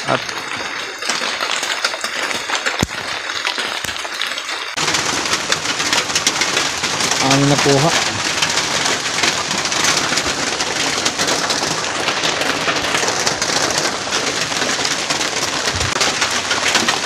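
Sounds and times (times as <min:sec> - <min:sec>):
heavy rain pouring: 0:00.0 - 0:17.0.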